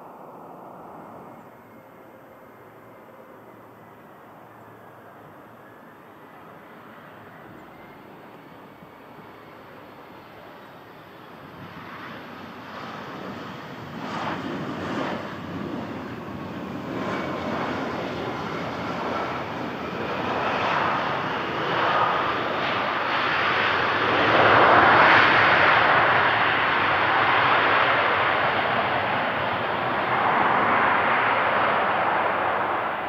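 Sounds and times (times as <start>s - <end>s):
faint jet engine whine: 0.0s - 33.0s
jet landing rushing noise: 24.1s - 33.0s.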